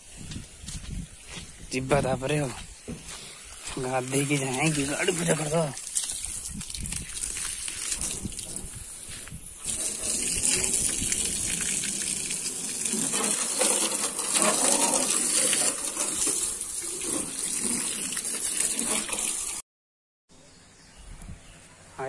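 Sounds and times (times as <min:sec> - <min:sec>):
hose water spraying on metal: 0:03.4 - 0:19.6
water splashing on ground: 0:03.6 - 0:19.6.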